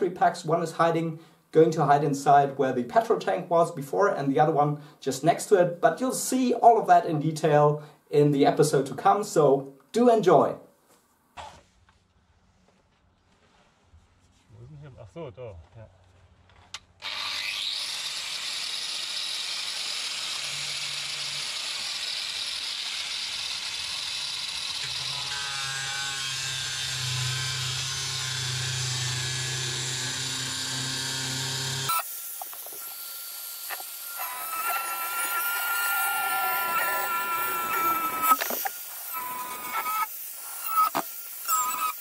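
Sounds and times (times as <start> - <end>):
angle grinder cutting metal: 17.0 - 42.0.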